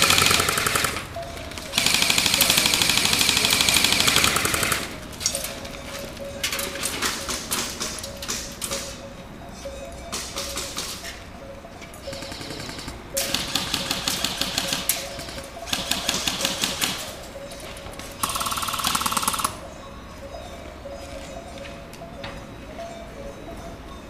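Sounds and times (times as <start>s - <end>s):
airsoft rifle bursts: 0.0s - 5.4s, 12.0s - 17.2s, 18.2s - 19.6s.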